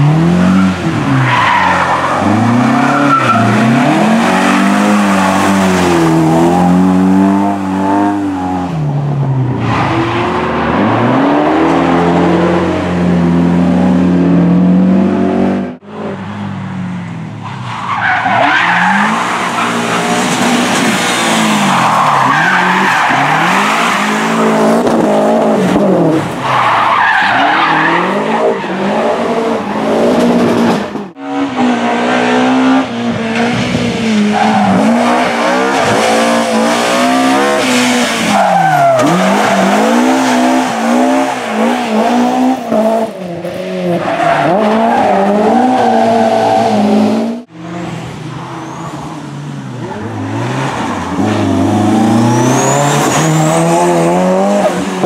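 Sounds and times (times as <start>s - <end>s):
rally car engine revving: 0.0s - 16.4s, 17.0s - 55.0s
tyre squeal: 52.0s - 53.8s.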